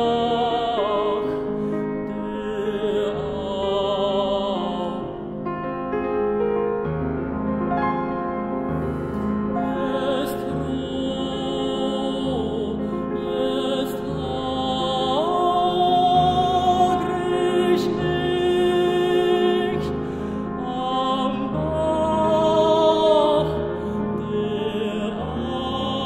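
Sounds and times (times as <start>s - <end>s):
tenor singing with vibrato: 0.0s - 5.4s, 8.8s - 26.0s
grand piano: 0.0s - 26.0s.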